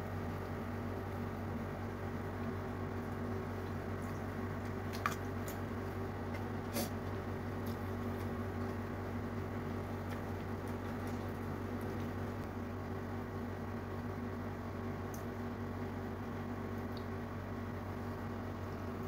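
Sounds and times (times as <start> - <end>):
steady low hum: 0.0 - 19.0
chewing: 9.7 - 12.4.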